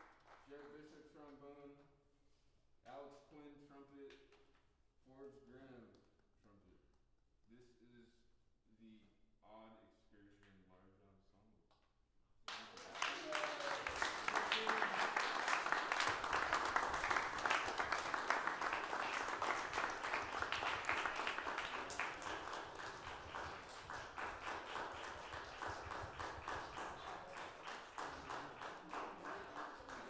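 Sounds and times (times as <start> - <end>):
audience applauding: 12.5 - 30.0.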